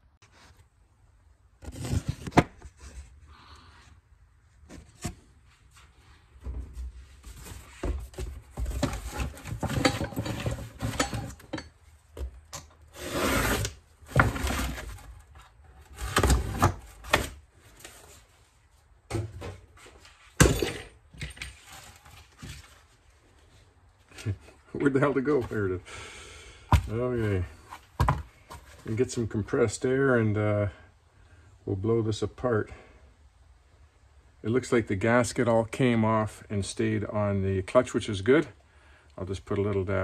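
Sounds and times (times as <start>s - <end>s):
scraping and rubbing: 12.9s - 18.4s.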